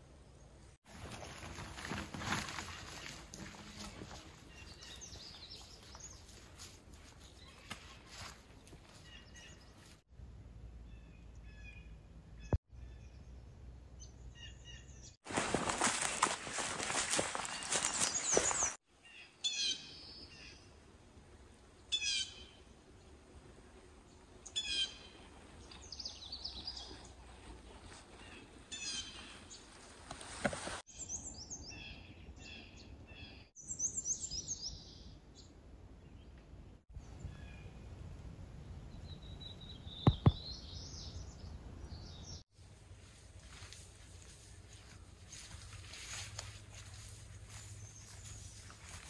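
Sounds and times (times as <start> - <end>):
songbirds singing: 3.4 - 6.5, 17.3 - 20.8, 30.9 - 37.9, 38.6 - 42.4
sharp knocks: 40.0 - 40.4.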